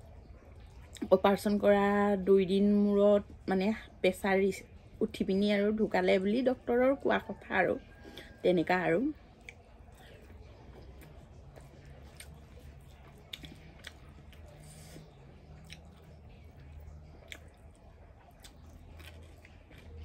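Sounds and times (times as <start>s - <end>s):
steady low hum: 0.0s - 20.0s
close-up chewing: 9.1s - 20.0s.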